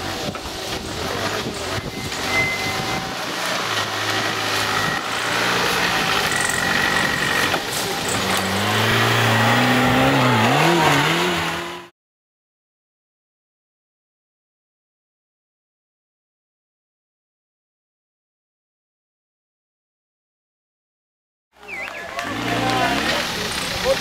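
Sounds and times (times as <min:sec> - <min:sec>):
off-road vehicle engine revving: 0:00.0 - 0:11.9, 0:21.7 - 0:24.0.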